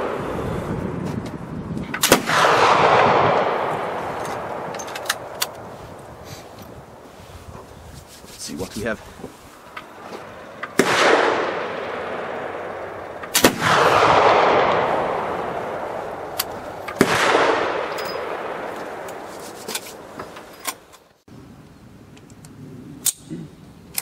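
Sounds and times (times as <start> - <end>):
rifle shots with rolling echo: 2.0 - 5.8, 10.3 - 19.3.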